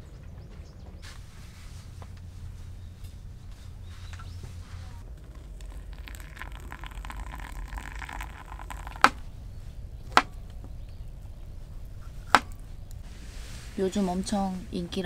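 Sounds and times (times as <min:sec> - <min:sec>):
low steady rumble: 0:00.0 - 0:15.0
sharp knocks: 0:12.3 - 0:12.6.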